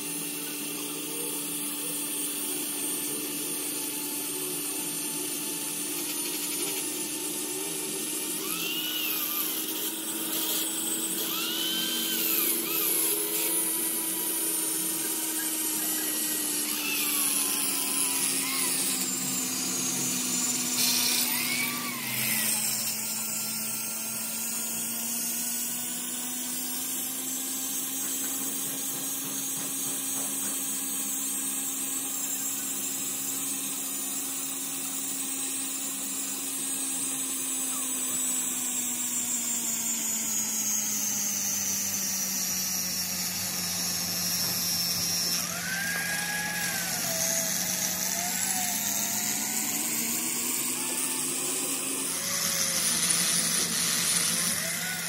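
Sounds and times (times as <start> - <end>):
angle grinder grinding steel: 0.0 - 55.0
short squealing tones: 11.0 - 13.6.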